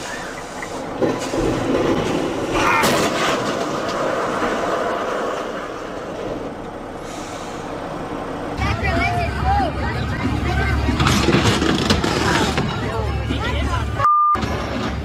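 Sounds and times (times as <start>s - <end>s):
truck crash impact: 1.0s - 5.6s, 10.9s - 12.8s
scraping and grinding clatter: 1.0s - 6.4s, 10.1s - 13.0s.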